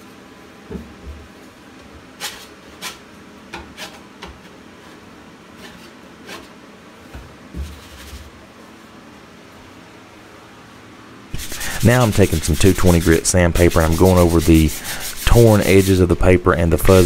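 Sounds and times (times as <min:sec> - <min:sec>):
putty knife scraping paper: 0:11.4 - 0:17.0.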